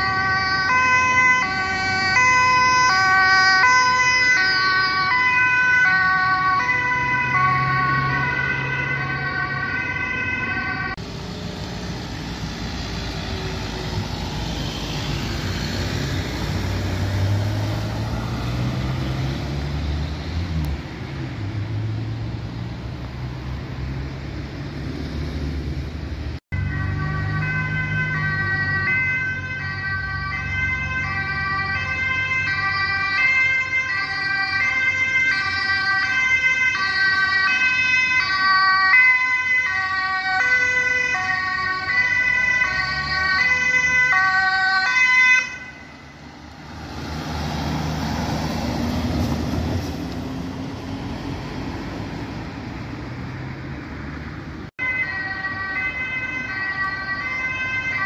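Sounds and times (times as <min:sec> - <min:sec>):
ambulance two-tone siren: 0:00.0 - 0:11.1, 0:26.5 - 0:49.3, 0:54.7 - 0:58.0
passing vehicle engine: 0:00.0 - 0:58.0
road noise: 0:00.0 - 0:58.0.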